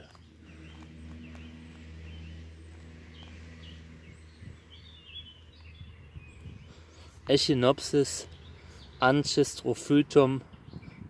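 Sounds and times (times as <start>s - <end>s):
low hum: 0.0s - 7.3s.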